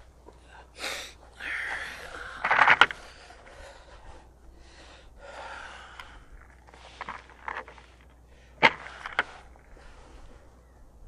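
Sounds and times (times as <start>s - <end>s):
person breathing: 0.4s - 10.6s.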